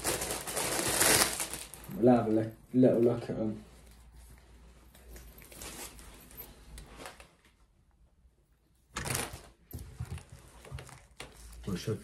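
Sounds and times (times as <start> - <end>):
plastic bag crinkling: 0.0 - 2.5
fabric rustling: 0.0 - 7.8.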